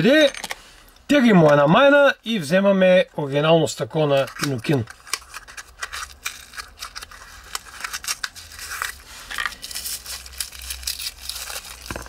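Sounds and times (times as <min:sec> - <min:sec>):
packaging crinkling and rustling: 0:04.0 - 0:12.0.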